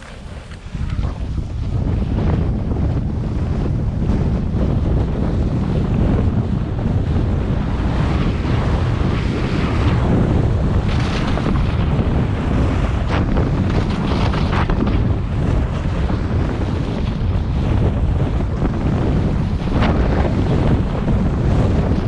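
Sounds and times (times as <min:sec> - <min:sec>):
skis scraping on snow: 0:00.0 - 0:02.1
wind buffeting microphone: 0:00.0 - 0:22.0.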